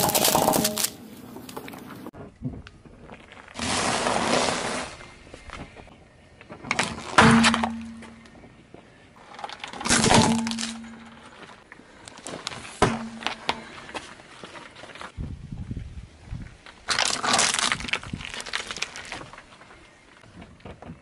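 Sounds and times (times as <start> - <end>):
objects cracking and breaking: 0.0 - 1.9, 9.2 - 11.5, 16.8 - 19.6
biscuits crunching under tyre: 16.6 - 20.3.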